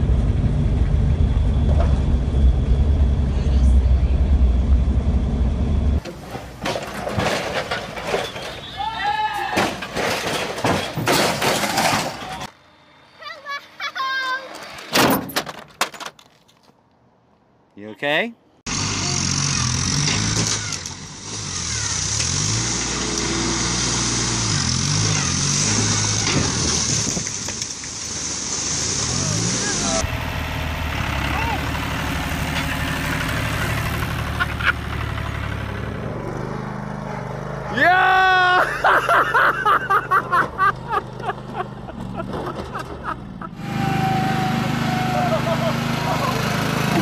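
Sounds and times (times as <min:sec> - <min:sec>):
tractor engine running under load: 0:18.7 - 0:37.6, 0:40.8 - 0:47.0
person laughing hard: 0:34.3 - 0:34.8, 0:38.3 - 0:43.6, 0:45.0 - 0:47.0.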